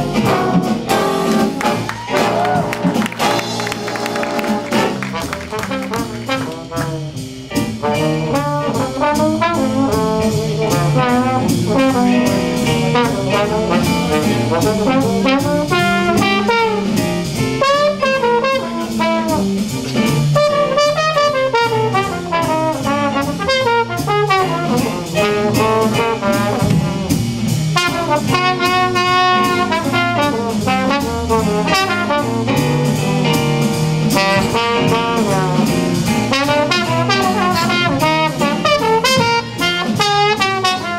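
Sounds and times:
trombone solo: 0:00.0 - 0:07.2, 0:07.8 - 0:40.9
bass line: 0:00.0 - 0:40.9
drum cymbal time: 0:00.0 - 0:40.9.

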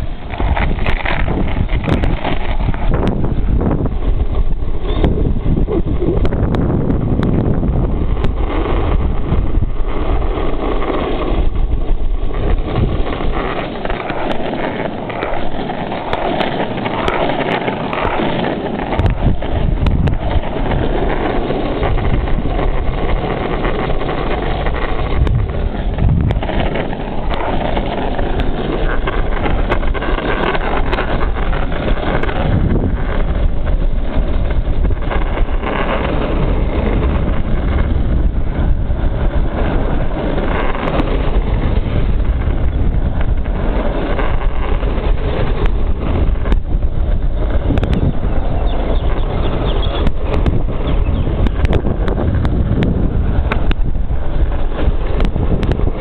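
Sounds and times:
skateboard wheels rolling on asphalt: 0:00.0 - 0:56.0
wind rushing over microphone: 0:00.0 - 0:56.0.

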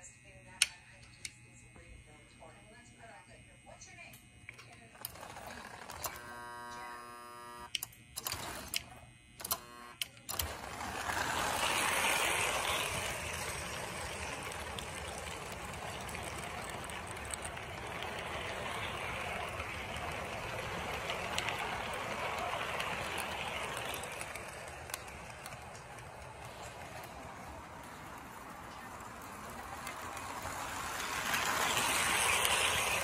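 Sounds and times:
model train rattling on track: 0:05.0 - 0:06.4, 0:10.3 - 0:33.0.

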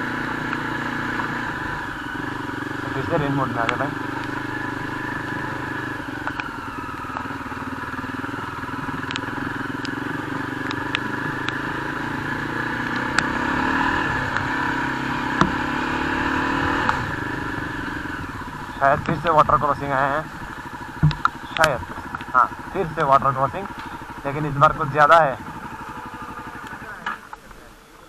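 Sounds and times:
motorcycle engine running: 0:00.0 - 0:28.0
sharp clicks: 0:05.3 - 0:07.3, 0:08.9 - 0:11.6, 0:12.9 - 0:13.3, 0:14.2 - 0:14.5, 0:21.0 - 0:22.4.

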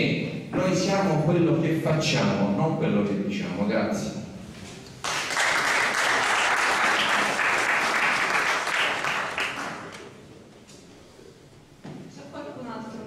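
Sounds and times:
audience applauding: 0:05.0 - 0:10.1.

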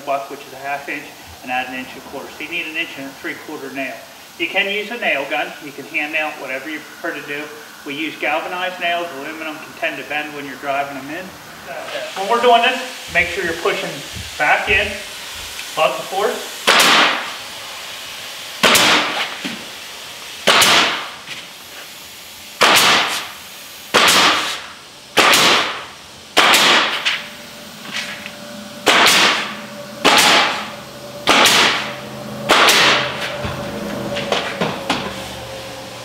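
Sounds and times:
pneumatic nailer shots: 0:16.6 - 0:17.5, 0:18.6 - 0:27.3, 0:28.8 - 0:33.6.

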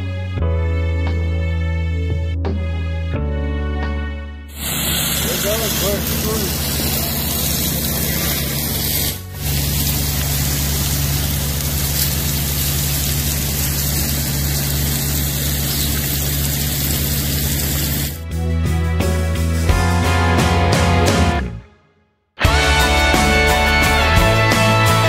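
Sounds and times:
music: 0:00.0 - 0:12.5, 0:18.2 - 0:25.0
hose spraying slurry hiss: 0:04.5 - 0:18.2
low machine hum: 0:04.6 - 0:18.2.

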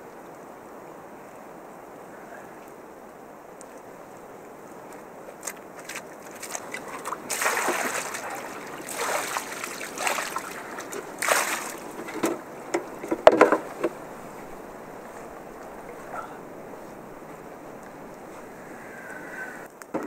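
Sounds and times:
muddy water splashing: 0:04.6 - 0:19.7.

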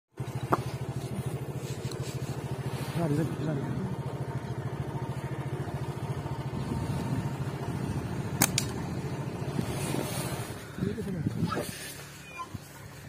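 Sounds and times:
motorcycle engine running: 0:00.1 - 0:13.0
sharp clicks: 0:08.4 - 0:08.8.

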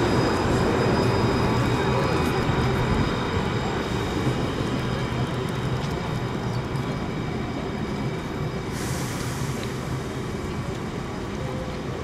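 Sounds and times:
street noise: 0:00.0 - 0:12.0
tram running hum: 0:00.0 - 0:12.0.

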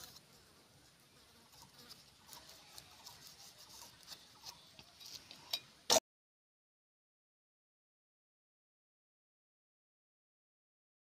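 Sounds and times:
crackles of crisp wafers handled: 0:00.0 - 0:05.5.

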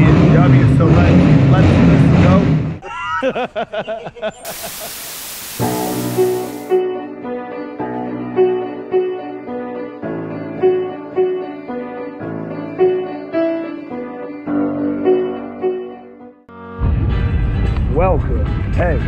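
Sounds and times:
calm repeating piano music: 0:06.7 - 0:16.4.

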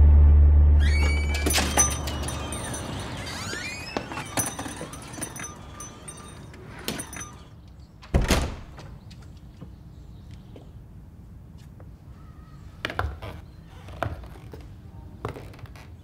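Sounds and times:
door bell jingling: 0:00.8 - 0:07.7
door shutting with heavy thud: 0:08.0 - 0:09.0.

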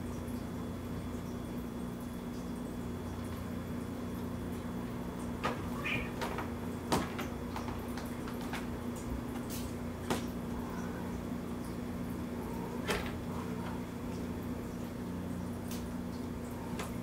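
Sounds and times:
steady low hum: 0:00.0 - 0:17.0
cats scrabbling: 0:05.2 - 0:11.4, 0:12.4 - 0:14.4.

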